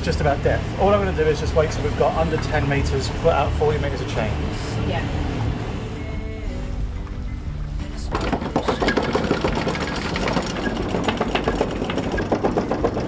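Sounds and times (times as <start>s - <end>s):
low steady rumble: 0.0s - 13.0s
anchor chain rattling: 8.0s - 13.0s.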